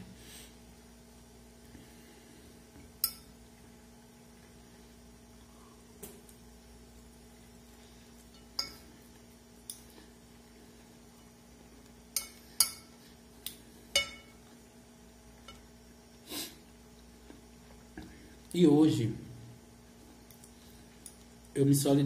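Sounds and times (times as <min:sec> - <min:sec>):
fork clinking on ceramic plate: 0:08.4 - 0:08.9, 0:12.2 - 0:12.9, 0:14.0 - 0:14.4.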